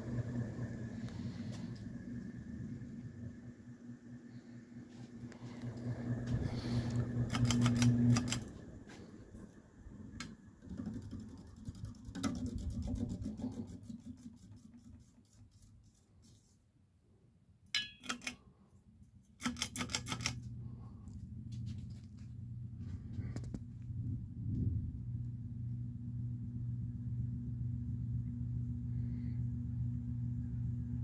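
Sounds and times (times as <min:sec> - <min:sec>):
ceiling fan motor humming: 0:00.0 - 0:16.5, 0:17.8 - 0:31.0.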